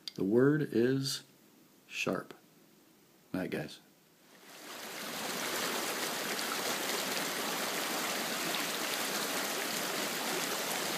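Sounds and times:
creek water flowing: 4.3s - 10.9s.

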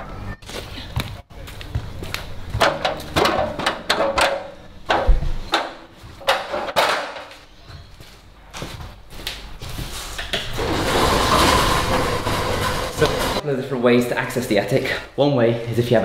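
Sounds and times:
aluminium stepladder clanking: 2.6s - 7.3s, 10.5s - 13.4s.

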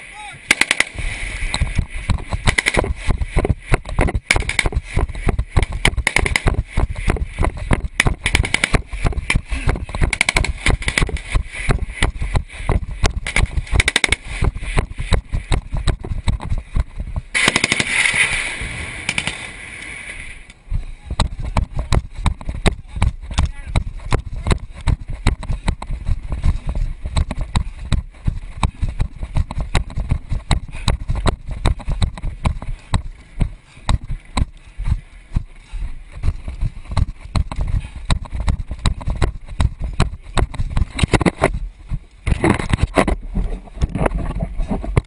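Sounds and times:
rush of noise: 0.0s - 32.8s
small-arms gunfire: 0.4s - 12.1s, 13.0s - 14.8s, 17.3s - 19.5s.

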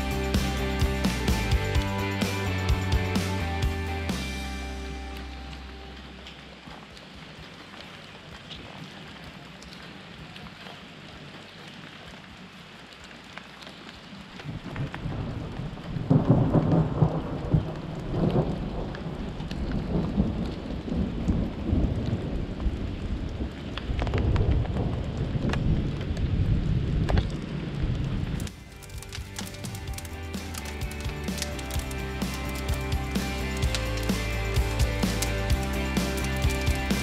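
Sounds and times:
rain falling: 0.0s - 37.0s
deep rumble of thunder: 14.4s - 28.4s.

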